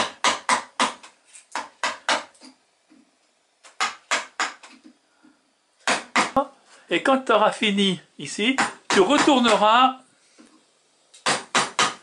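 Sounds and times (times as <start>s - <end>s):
wooden mallet striking gouge: 0.0s - 2.3s, 3.7s - 4.8s, 5.8s - 6.4s, 11.2s - 12.0s.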